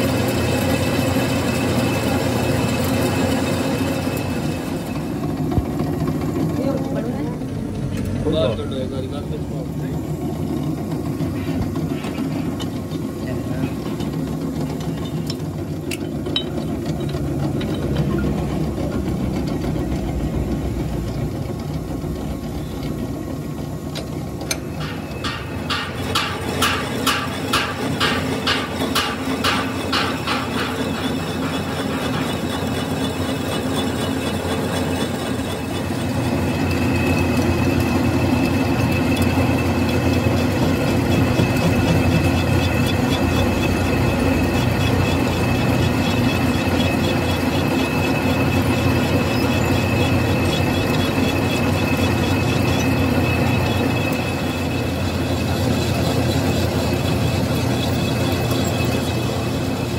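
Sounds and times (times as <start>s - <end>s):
metal lathe cutting: 0.0s - 7.2s, 8.0s - 59.9s
high-pitched cutting whine: 14.8s - 59.9s
sharp knocks: 24.7s - 32.3s.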